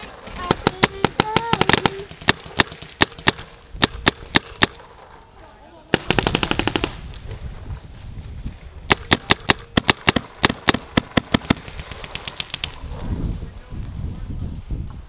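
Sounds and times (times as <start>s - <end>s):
paintball marker firing: 0.4s - 4.8s, 5.9s - 7.0s, 8.9s - 12.8s.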